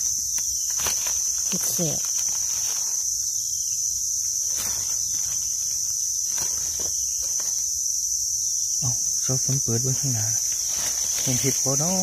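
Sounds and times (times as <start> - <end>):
rustling dry leaves: 0.0 - 8.2, 9.2 - 12.0
high-pitched insect drone: 0.0 - 12.0.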